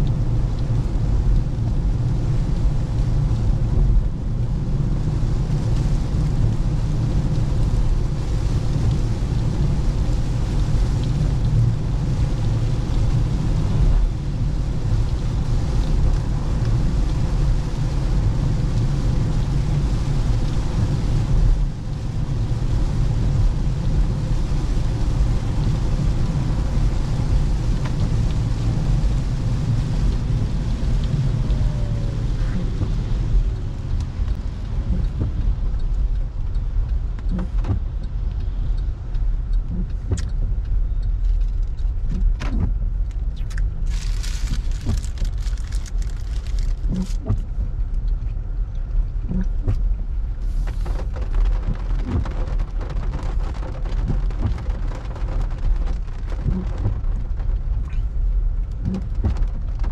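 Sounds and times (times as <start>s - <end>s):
car engine and tyre rumble: 0.0s - 59.9s
road hiss: 50.4s - 52.5s.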